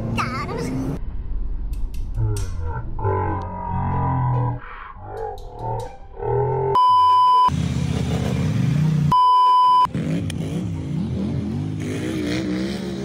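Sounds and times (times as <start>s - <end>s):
censor bleeps: 6.8s - 7.5s, 9.1s - 9.9s
vehicle engine revving: 7.5s - 13.0s.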